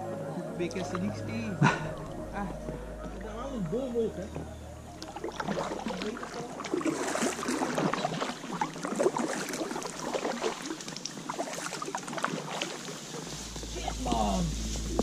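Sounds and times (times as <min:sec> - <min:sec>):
crackle of drips and small splashes: 0:04.3 - 0:15.0
paddle splashing in water: 0:05.0 - 0:15.0.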